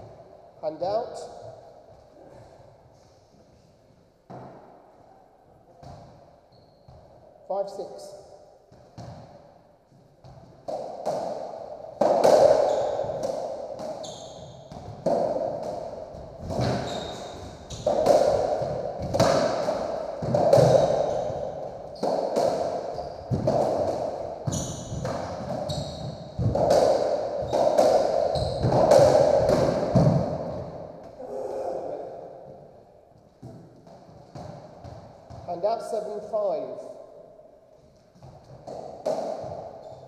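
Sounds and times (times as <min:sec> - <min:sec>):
shoes squeaking on floor: 0:05.8 - 0:07.2, 0:12.6 - 0:13.2, 0:13.9 - 0:15.0, 0:16.4 - 0:18.1, 0:20.6 - 0:26.6, 0:27.4 - 0:29.0
racquet hitting ball: 0:08.7 - 0:09.6, 0:10.2 - 0:31.2, 0:32.4 - 0:35.5, 0:38.1 - 0:40.0
ball slapping off walls: 0:10.2 - 0:31.2, 0:38.2 - 0:39.9.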